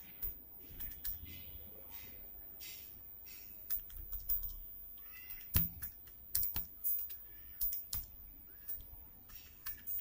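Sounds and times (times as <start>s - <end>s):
calculator keys clicking: 3.7s - 10.0s.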